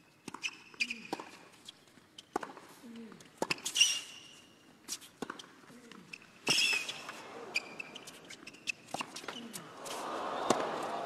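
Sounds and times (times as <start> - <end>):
racket striking tennis ball: 0.2 - 1.4, 2.3 - 2.7, 3.4 - 3.9, 6.4 - 10.9
shoes squealing on court: 3.4 - 10.0.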